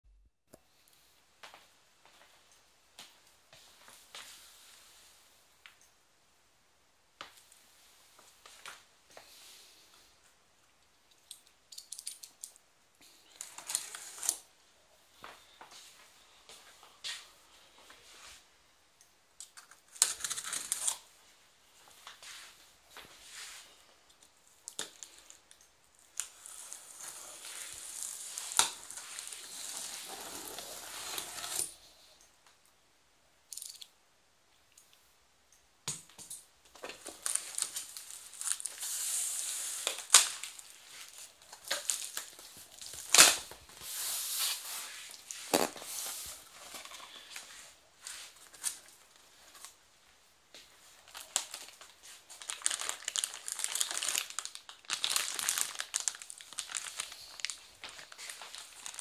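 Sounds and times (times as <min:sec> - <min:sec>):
cardboard and polystyrene rustling: 0:26.2 - 0:31.8, 0:36.8 - 0:49.7, 0:51.0 - 0:59.0.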